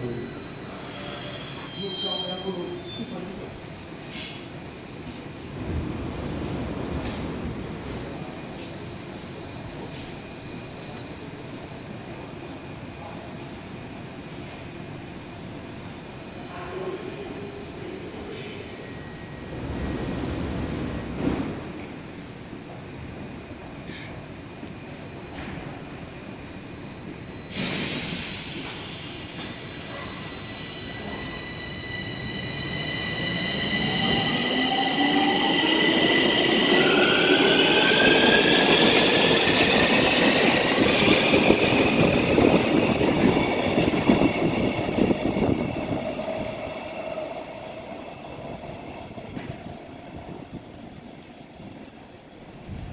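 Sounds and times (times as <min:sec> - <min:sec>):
train wheel and rail noise: 0:00.0 - 0:52.9
loud air hiss: 0:27.5 - 0:29.3.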